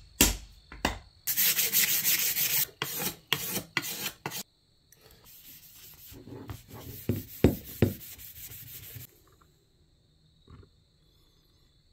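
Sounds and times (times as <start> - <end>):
sandpaper rubbing wood: 1.3 - 4.4, 5.3 - 9.1
cloth rubbing wood: 5.3 - 9.1.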